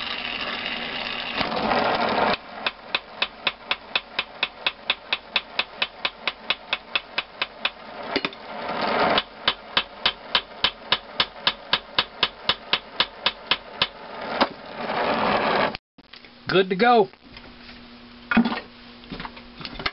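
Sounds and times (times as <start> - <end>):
hammer striking metal: 2.6 - 8.4, 9.4 - 14.0.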